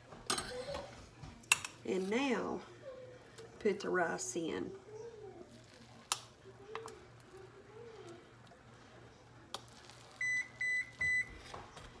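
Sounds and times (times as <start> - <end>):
oven beeping: 10.1 - 12.0.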